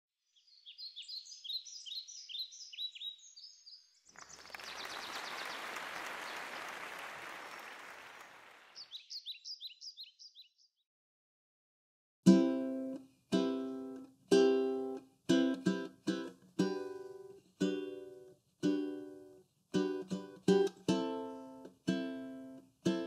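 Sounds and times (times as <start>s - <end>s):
small birds chirping: 0.2s - 6.5s, 8.6s - 10.8s.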